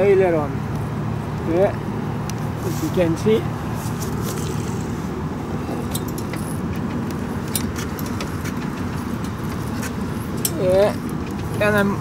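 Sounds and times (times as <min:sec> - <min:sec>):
low outdoor rumble: 0:00.0 - 0:12.0
handling clicks and rattles: 0:05.6 - 0:12.0.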